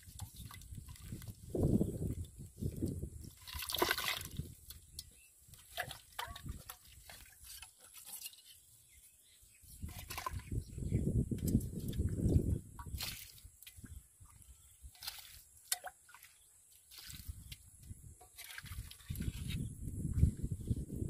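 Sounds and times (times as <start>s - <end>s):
water dripping: 0.0s - 7.7s, 11.4s - 19.3s
muddy water splashing: 0.0s - 8.7s, 9.7s - 10.9s, 11.6s - 19.7s.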